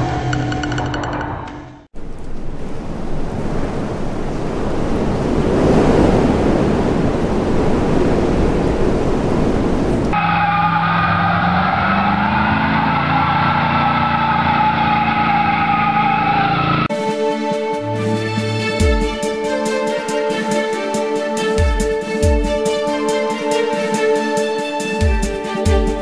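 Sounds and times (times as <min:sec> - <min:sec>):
car engine at high revs: 0:10.0 - 0:16.9.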